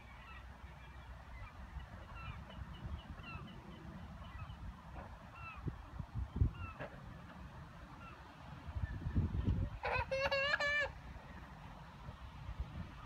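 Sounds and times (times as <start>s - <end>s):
geese honking: 9.8s - 11.0s.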